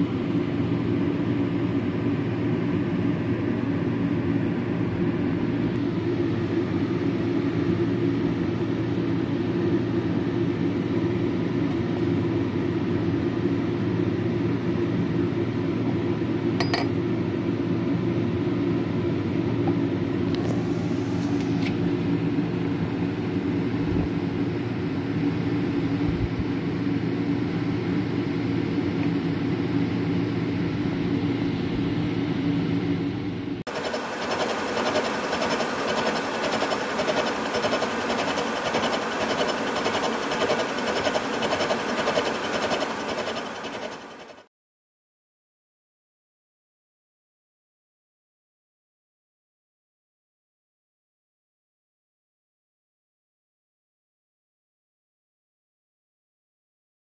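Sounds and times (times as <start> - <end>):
metal planer droning: 33.7 - 44.5.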